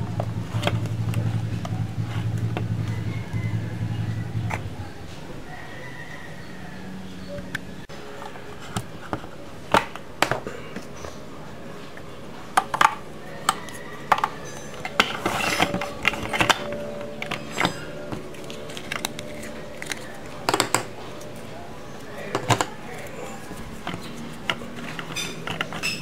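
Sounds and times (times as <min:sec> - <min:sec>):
plastic toy parts clicking: 0:12.6 - 0:21.4, 0:22.3 - 0:26.0
rustling scrape: 0:14.5 - 0:16.4.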